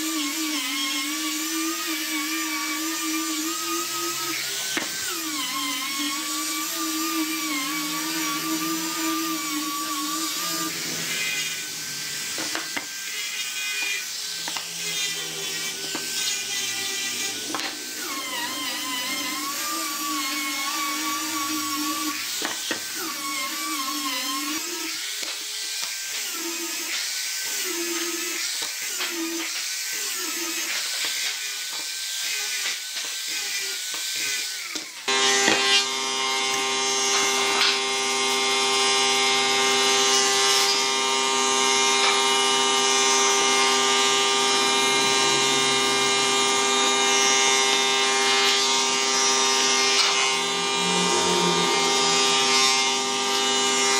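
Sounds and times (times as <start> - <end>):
electric sander whining on wood: 0.0 - 53.9
steady hum of held tones: 50.3 - 53.2.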